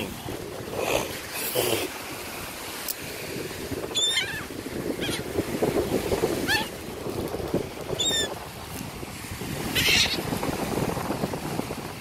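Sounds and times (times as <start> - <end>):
wind and surf: 0.0 - 12.0
gulls calling: 3.8 - 5.4, 6.3 - 6.8, 7.9 - 8.4, 9.6 - 10.4.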